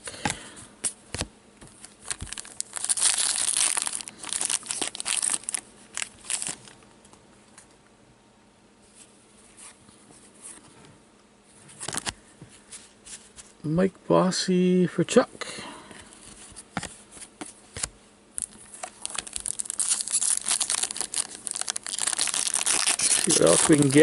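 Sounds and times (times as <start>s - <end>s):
plastic wrapper tearing and crinkling: 1.8s - 6.8s, 18.4s - 24.0s
cards being handled: 16.2s - 24.0s.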